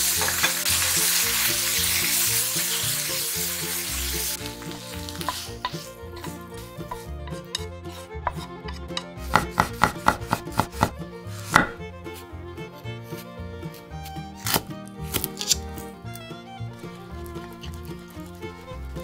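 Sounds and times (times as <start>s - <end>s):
light background music: 0.0s - 19.0s
knife knocking on cutting board: 8.2s - 11.8s.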